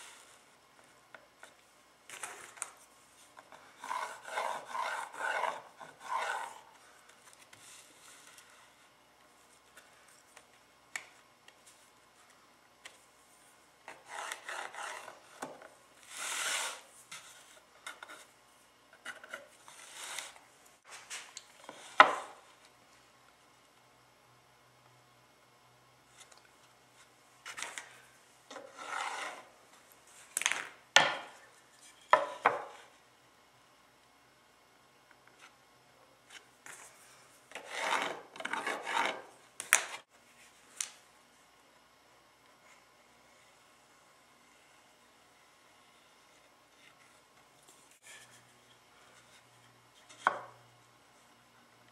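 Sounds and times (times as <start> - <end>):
wood scraped by hand: 3.5 - 6.7, 13.9 - 17.5, 28.5 - 29.5, 37.6 - 39.3.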